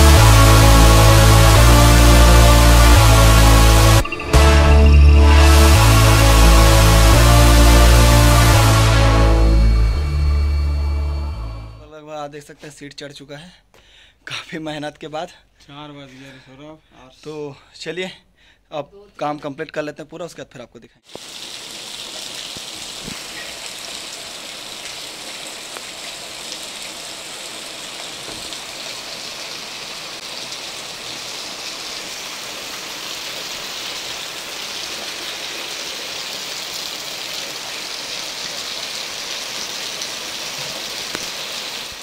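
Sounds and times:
heavy rain on corrugated roof: 0:00.0 - 0:04.0, 0:21.1 - 0:42.0.

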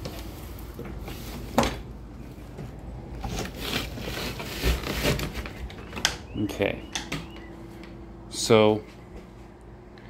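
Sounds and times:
boards and latch rattling: 0:03.2 - 0:07.5.

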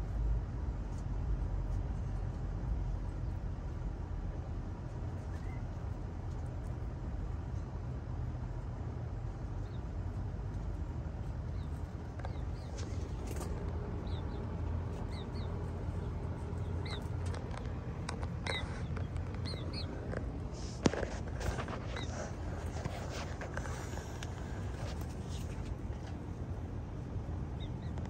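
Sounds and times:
steady low rumble: 0:00.0 - 0:28.0
high-pitched bird chirps: 0:15.0 - 0:15.6, 0:16.6 - 0:17.3, 0:18.4 - 0:19.9.

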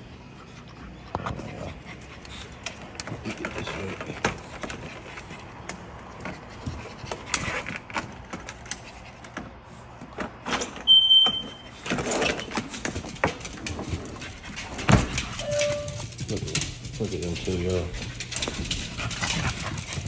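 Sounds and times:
sliding door opening: 0:10.3 - 0:12.7.

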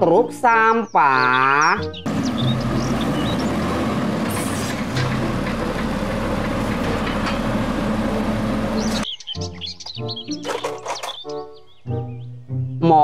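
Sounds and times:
diesel truck engine running: 0:01.8 - 0:09.0
hydraulic arm clunks: 0:02.1 - 0:09.0.

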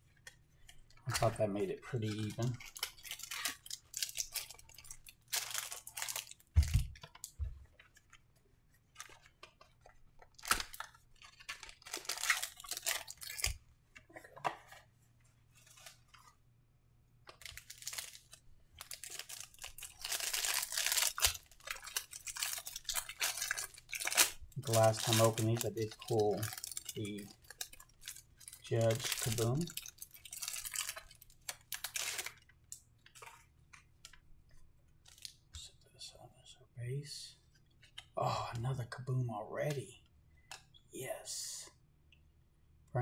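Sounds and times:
wrapper tearing and crinkling: 0:02.0 - 0:07.3, 0:10.2 - 0:13.6, 0:17.4 - 0:32.5.

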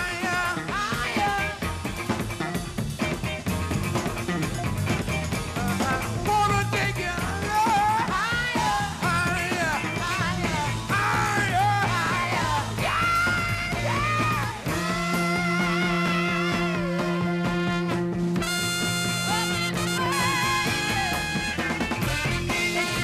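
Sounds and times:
funk rock band playing: 0:00.0 - 0:23.0
lead singer's sliding voice: 0:05.6 - 0:18.6.

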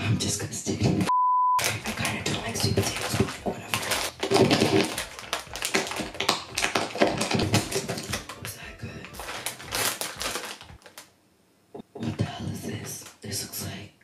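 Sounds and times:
chips crunching: 0:01.6 - 0:11.1
snack bag crinkling: 0:01.6 - 0:11.2.

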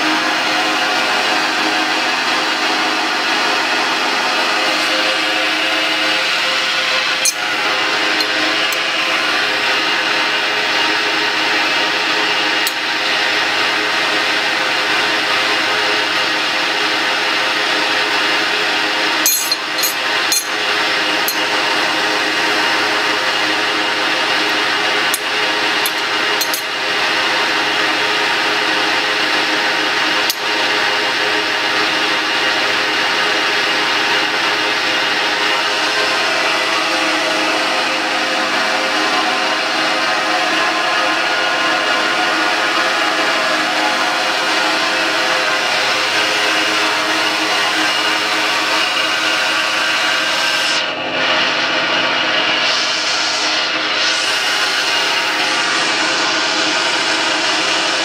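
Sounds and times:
grinder machine hum: 0:00.0 - 0:41.6
wrench clicking on metal: 0:19.3 - 0:20.5, 0:25.9 - 0:26.7.

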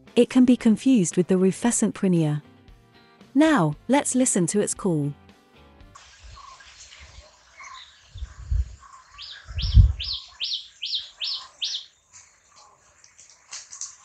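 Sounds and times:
low rumbles on microphone: 0:08.1 - 0:08.8, 0:09.4 - 0:10.2.

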